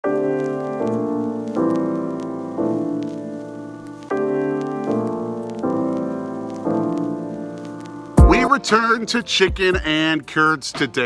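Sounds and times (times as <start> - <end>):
keyboard chords ringing: 0.0 - 9.9.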